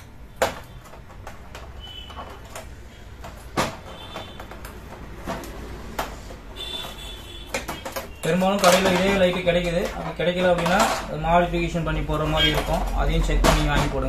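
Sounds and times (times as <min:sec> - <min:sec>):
clicks and knocks on plastic: 0:00.4 - 0:11.2.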